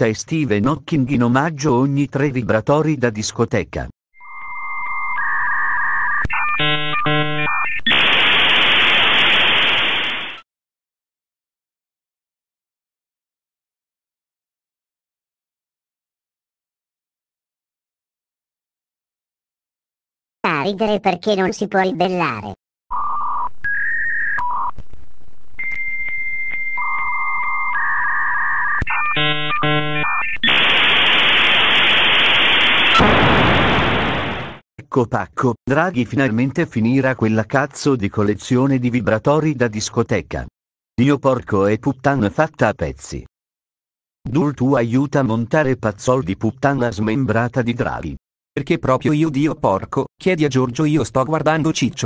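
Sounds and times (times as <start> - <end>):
electronic beeping tones: 4.2 - 8.7, 25.6 - 31.0.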